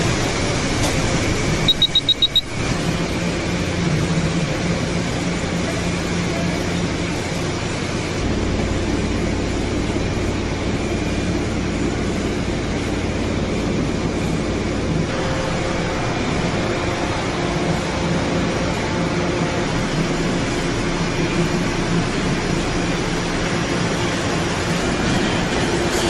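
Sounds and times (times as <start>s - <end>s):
processing machinery running: 0.0s - 26.0s
high-pitched beeps: 1.7s - 2.6s.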